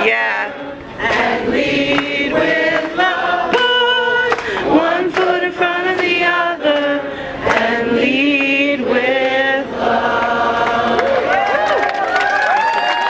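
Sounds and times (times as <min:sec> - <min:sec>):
crowd singing slow song: 0:00.0 - 0:11.6
woman singing into a microphone: 0:02.8 - 0:09.7.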